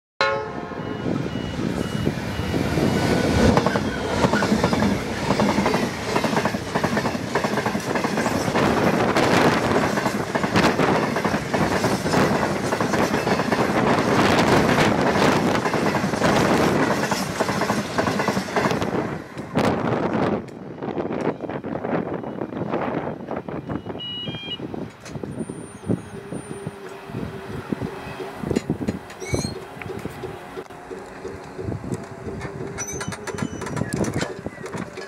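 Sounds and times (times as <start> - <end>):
diesel locomotives passing: 0.2 - 35.0
wagon wheels clattering on rails: 28.0 - 35.0.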